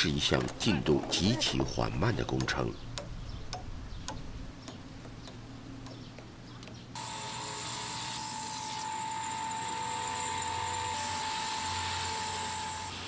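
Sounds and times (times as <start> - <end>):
hand tool tapping: 2.3 - 6.8
power tool whining: 7.0 - 13.0.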